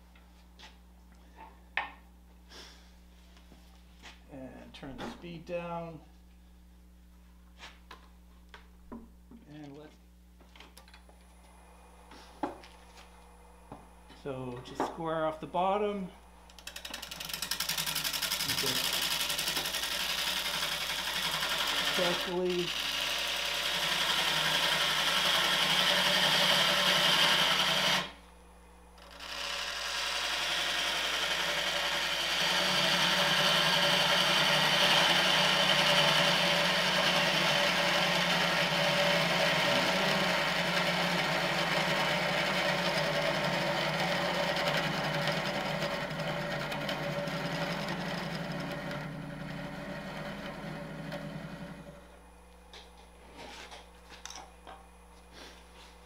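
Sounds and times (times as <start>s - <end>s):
lathe motor hum: 16.5s - 28.2s, 29.0s - 52.2s
tool scraping wood on lathe: 16.5s - 28.2s, 29.0s - 52.0s.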